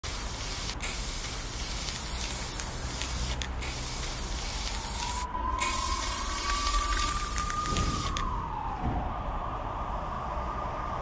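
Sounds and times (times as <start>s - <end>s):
spray paint can hissing: 0.0s - 8.2s
rising whine: 4.8s - 11.0s.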